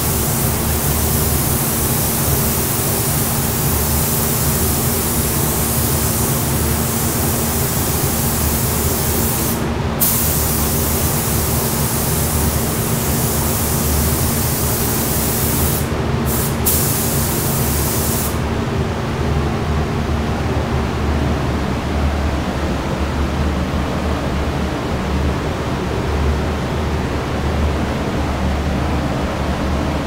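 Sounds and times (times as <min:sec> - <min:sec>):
spray gun hissing: 0:00.0 - 0:18.4.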